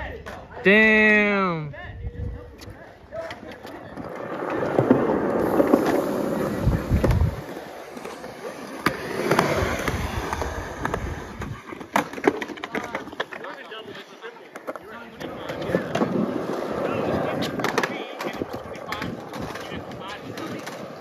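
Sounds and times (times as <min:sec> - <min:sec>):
skateboard wheels rolling on concrete: 0:00.0 - 0:21.0
skateboard clacks: 0:02.6 - 0:21.0.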